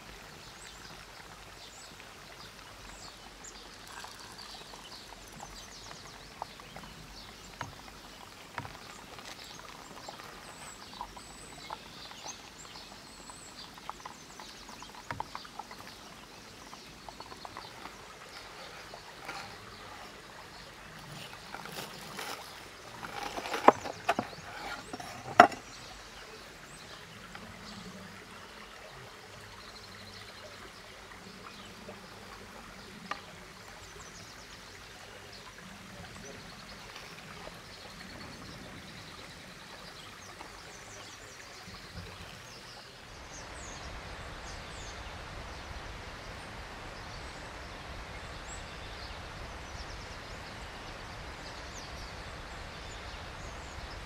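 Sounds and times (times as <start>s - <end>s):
knife cutting crunchy crust: 21.2s - 25.6s.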